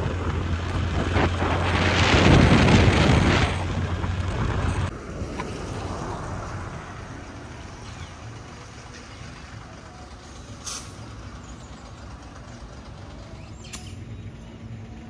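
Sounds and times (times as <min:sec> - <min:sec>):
wind buffeting microphone: 0:00.0 - 0:07.2
low engine hum: 0:00.0 - 0:15.0
outdoor background: 0:00.0 - 0:15.0.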